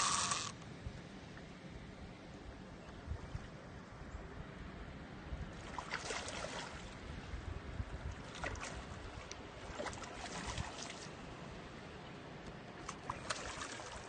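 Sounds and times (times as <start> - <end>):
wind on microphone: 5.2 - 11.0
fish splashing in water: 5.6 - 6.9, 8.3 - 11.2, 12.8 - 14.0.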